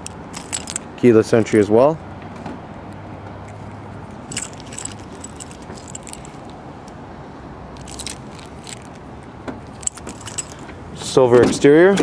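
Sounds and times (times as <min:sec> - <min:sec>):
keys jangling: 0:00.0 - 0:01.6, 0:03.5 - 0:06.5, 0:07.8 - 0:09.0, 0:09.7 - 0:10.7.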